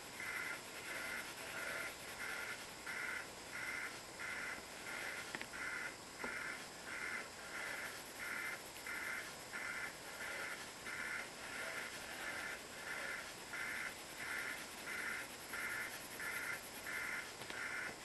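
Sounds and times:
colored pencil shading on paper: 0:00.0 - 0:18.0.

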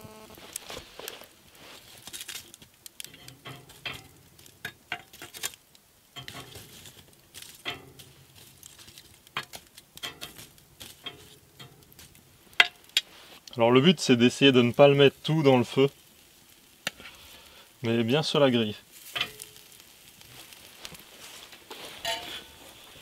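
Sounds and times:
embers crackling and popping: 0:00.0 - 0:23.0
soft hiss: 0:00.0 - 0:23.0.

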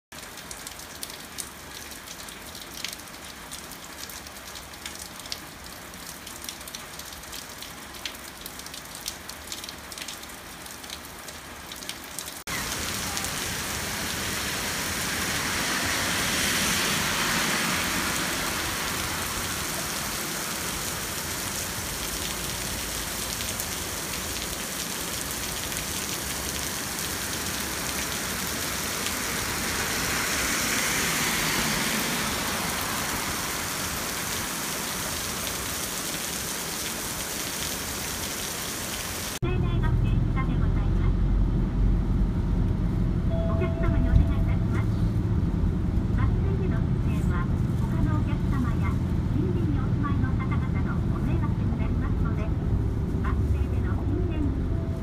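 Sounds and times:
rain drops pattering: 0:00.1 - 0:39.4
downpour pelting road: 0:00.1 - 0:55.0
heavy rain hiss: 0:12.4 - 0:39.4
low rumble: 0:39.4 - 0:55.0.

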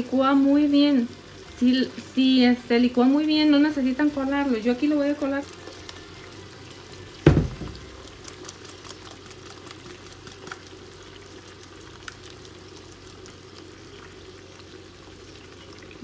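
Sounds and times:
shrimp sizzling in a pan: 0:00.0 - 0:16.0
loud knock: 0:07.3 - 0:07.8
small crackles: 0:07.7 - 0:16.0.

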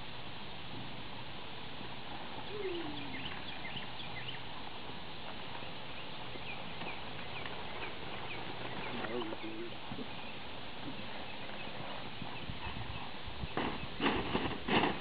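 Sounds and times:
plastic tarp rustling: 0:13.6 - 0:15.0.

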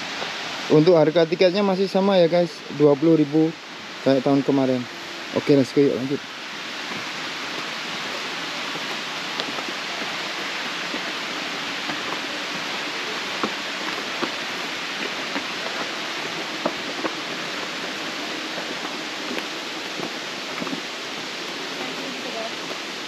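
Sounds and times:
waterfall rushing: 0:00.0 - 0:23.0
footsteps on stone steps: 0:06.7 - 0:23.0.

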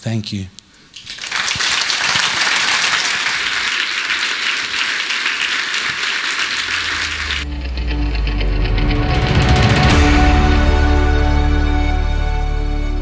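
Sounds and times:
audience applauding: 0:01.0 - 0:07.4.

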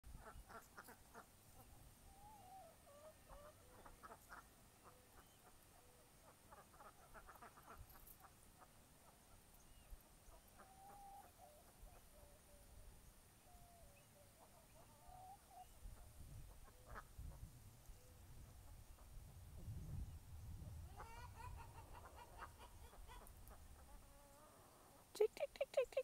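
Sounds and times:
chickens clucking: 0:00.2 - 0:05.6, 0:06.2 - 0:09.4, 0:10.3 - 0:12.2, 0:14.4 - 0:17.1, 0:20.9 - 0:26.0
ducks quacking: 0:06.5 - 0:07.9.

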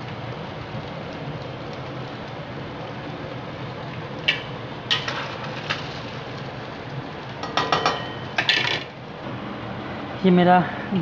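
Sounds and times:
meat sizzling in hot oil: 0:00.0 - 0:09.2.

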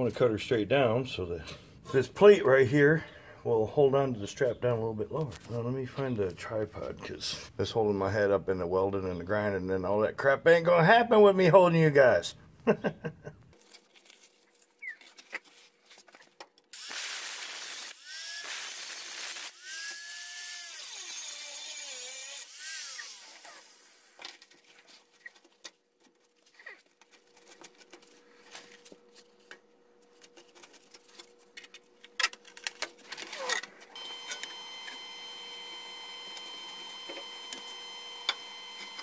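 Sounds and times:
angle grinder cutting steel: 0:16.8 - 0:24.2, 0:33.4 - 0:39.0
faint steady hum: 0:24.2 - 0:39.0.

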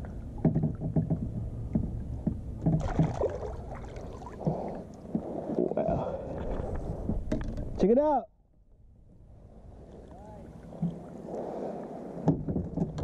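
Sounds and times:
water splashing: 0:00.0 - 0:07.1.

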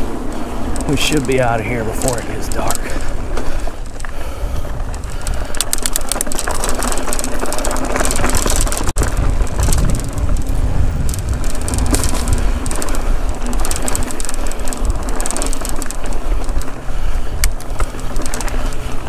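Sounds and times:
bike clattering over bumps: 0:00.0 - 0:19.0
bike tyre rumble on dirt: 0:00.0 - 0:19.0
wind buffeting microphone: 0:00.0 - 0:19.0.

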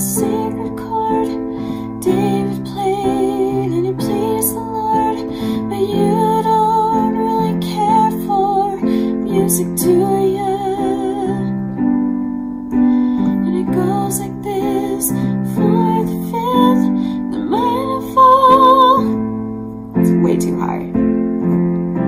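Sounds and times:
woman singing with vibrato: 0:00.0 - 0:11.6, 0:13.3 - 0:19.3
piano chords: 0:00.0 - 0:22.0.

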